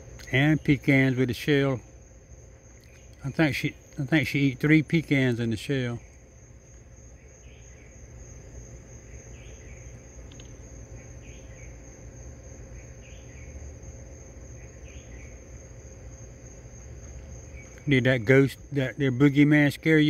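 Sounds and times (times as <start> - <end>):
crickets trilling: 0.0 - 20.0
short insect call: 0.0 - 20.0.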